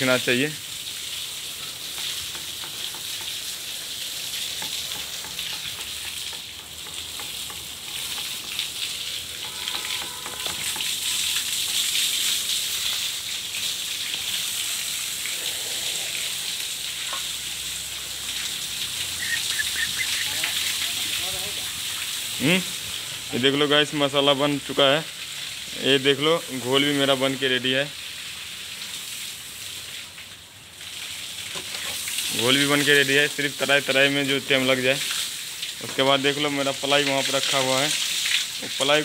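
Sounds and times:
water pouring and splashing: 0.0 - 39.0.

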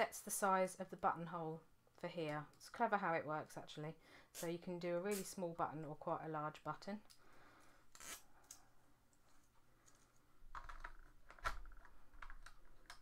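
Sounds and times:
small plastic parts clicking: 9.8 - 13.0.

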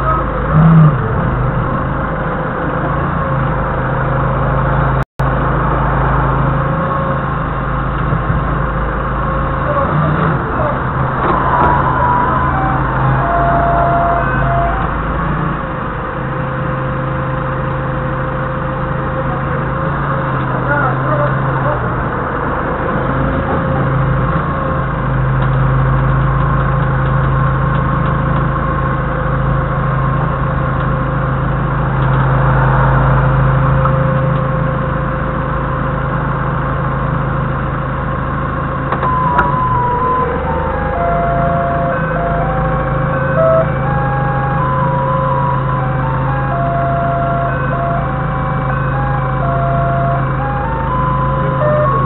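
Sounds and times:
forklift engine running: 0.0 - 52.0
electronic melody of stepped notes: 39.0 - 52.0.

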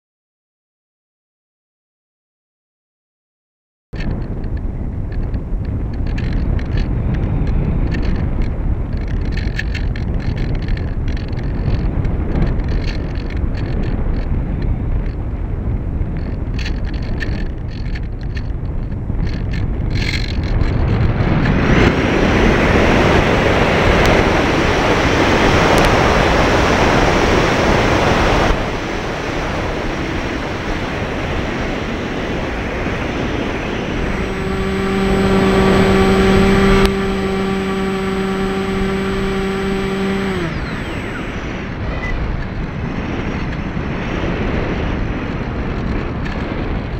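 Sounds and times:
airflow rushing over camera: 4.0 - 46.9
electric motor humming: 22.0 - 42.4.

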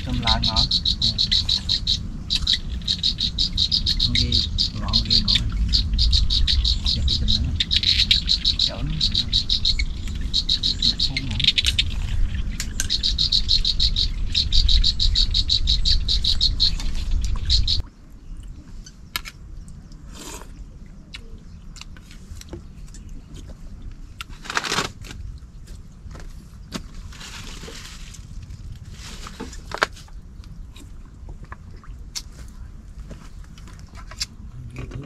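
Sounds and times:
high-pitched animal chirping: 0.0 - 17.8
low rumble: 0.0 - 18.8.

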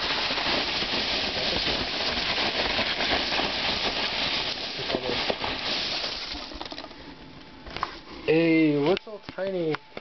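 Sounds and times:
packing peanuts rustling: 0.0 - 7.0.

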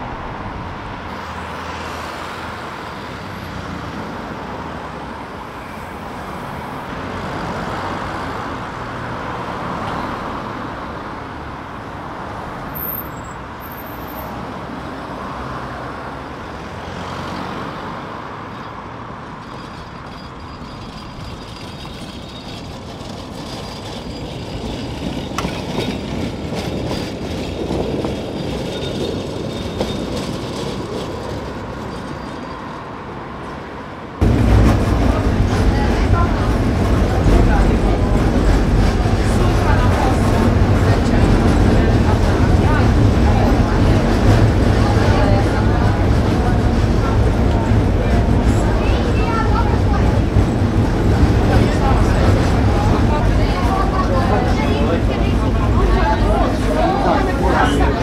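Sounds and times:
road traffic passing: 0.0 - 58.0
tram running on tracks: 0.0 - 58.0
tram knocking and rattling: 19.2 - 58.0.

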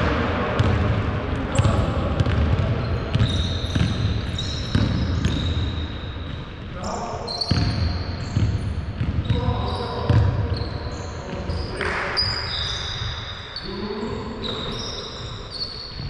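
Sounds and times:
sneaker squeaks: 1.5 - 16.0
basketball bouncing on hardwood: 1.6 - 5.7, 7.5 - 9.5, 10.1 - 10.4.

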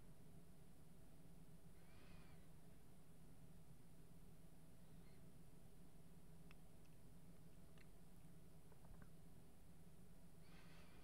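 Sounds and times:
low room hum: 0.0 - 11.0
faint small clicks: 6.4 - 8.0, 8.6 - 9.2.

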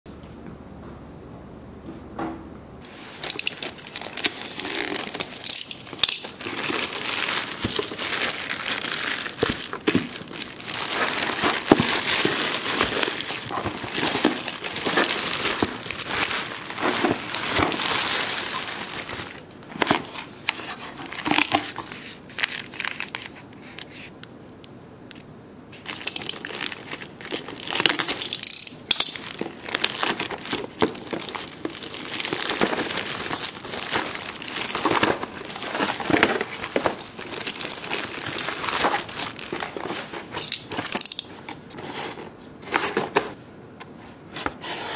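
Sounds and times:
plastic bags crinkling and tearing: 2.8 - 23.8, 25.8 - 41.7
boxes knocking and clattering: 6.2 - 20.1.

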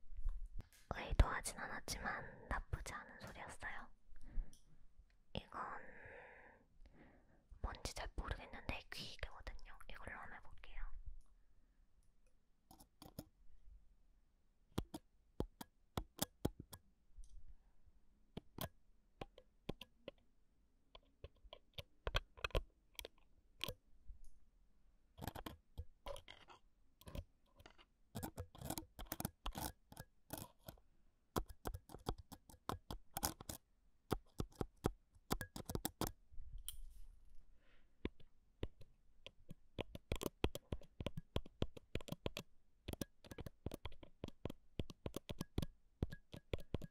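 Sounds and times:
fingers tapping and scratching recorder: 25.2 - 30.8, 31.4 - 36.2, 38.1 - 46.9.

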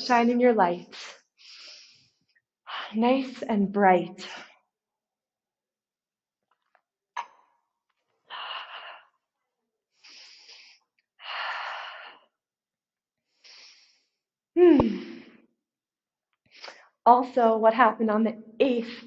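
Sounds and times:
woman breathing deeply: 1.4 - 3.0.

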